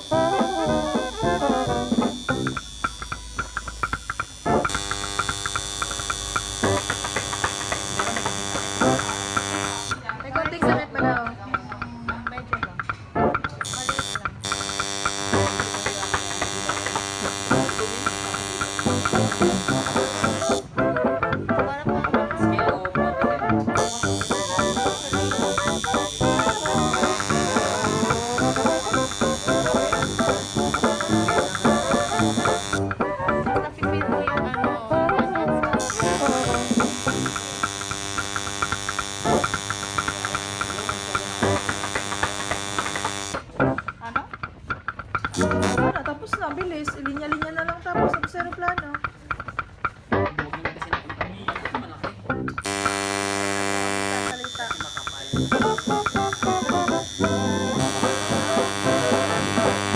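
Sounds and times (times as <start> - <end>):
tattoo machine buzzing: 0.0 - 10.2, 13.6 - 20.8, 23.8 - 32.9, 35.7 - 43.5, 45.3 - 45.9, 52.6 - 59.9.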